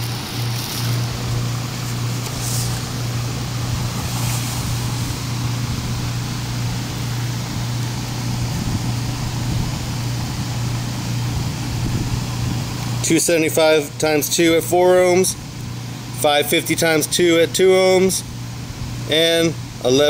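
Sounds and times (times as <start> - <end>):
soft rustle: 0.0 - 1.2, 1.8 - 2.9, 4.0 - 5.1
constant rushing noise: 0.0 - 13.4
steady low hum: 0.0 - 20.0.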